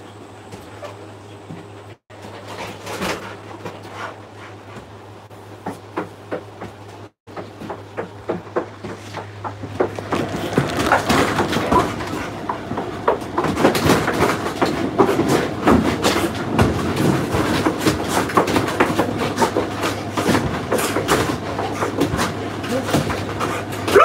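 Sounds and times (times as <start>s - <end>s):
dog scrabbling in kennel: 7.4s - 24.0s.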